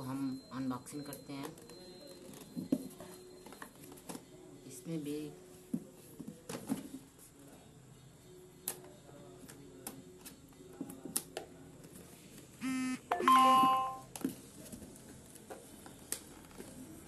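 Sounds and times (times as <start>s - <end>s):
two-note electronic chime: 13.1s - 14.0s.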